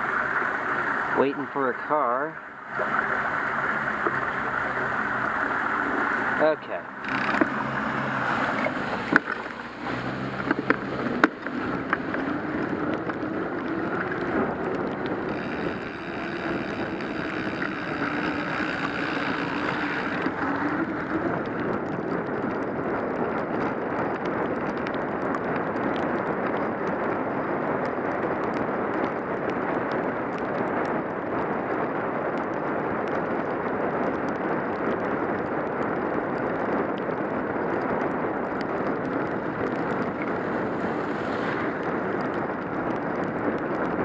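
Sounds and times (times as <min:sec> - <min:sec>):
wind on microphone: 0:00.0 - 0:44.0
tyres hissing on wet pavement: 0:02.8 - 0:12.4, 0:40.3 - 0:41.8.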